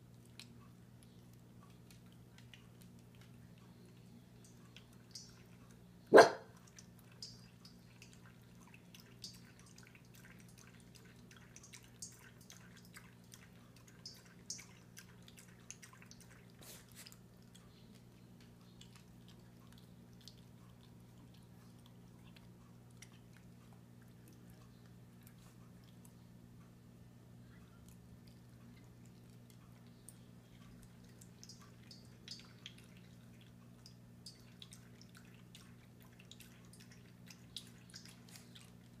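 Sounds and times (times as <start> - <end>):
dog licking metal bowl: 6.5 - 24.6, 28.8 - 39.0.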